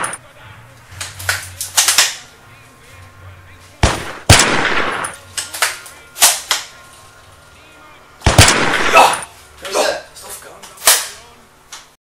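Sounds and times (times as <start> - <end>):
loud gunshots with echo: 3.8 - 5.2, 8.2 - 9.3
lighter sharp gunshots: 3.8 - 6.7, 8.2 - 9.3.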